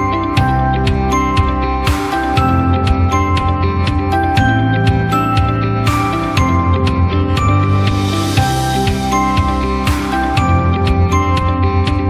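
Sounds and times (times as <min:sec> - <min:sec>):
gentle instrumental music: 0:00.0 - 0:12.0.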